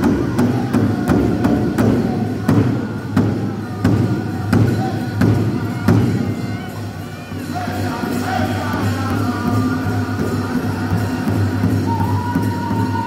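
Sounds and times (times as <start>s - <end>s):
large drum beating: 0.0s - 6.6s
people singing: 7.5s - 13.0s.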